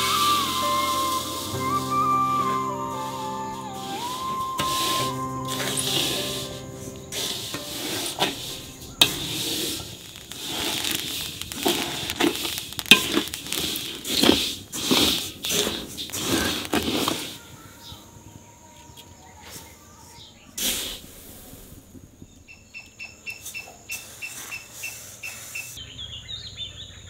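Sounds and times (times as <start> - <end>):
wooden spoon stirring seeds in wok: 0.1 - 1.6, 3.6 - 17.5.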